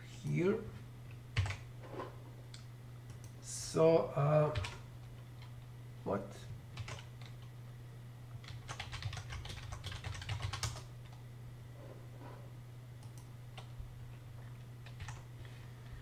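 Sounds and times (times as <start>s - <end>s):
low steady hum: 0.0s - 16.0s
typing on computer keyboard: 1.4s - 1.6s, 4.6s - 4.8s, 6.8s - 7.5s, 8.4s - 11.2s, 14.8s - 15.2s.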